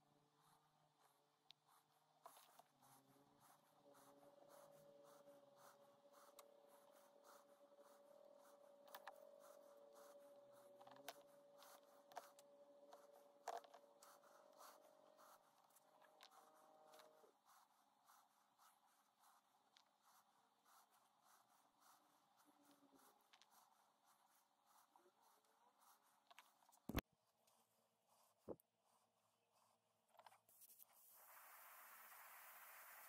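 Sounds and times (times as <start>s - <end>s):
mesh and wooden lure rubbing: 1.1s - 27.0s.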